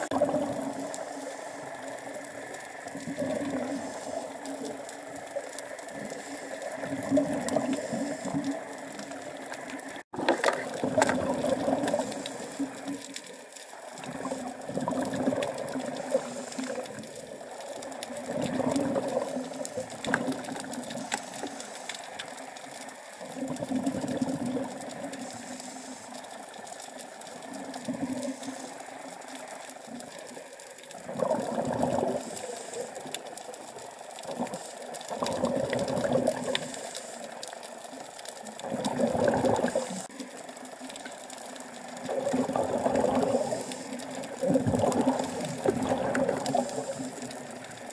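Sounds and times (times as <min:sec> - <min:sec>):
exhaled bubbles underwater: 0:00.0 - 0:47.9
faint clicking: 0:00.0 - 0:47.9
regulator hiss: 0:25.0 - 0:26.6.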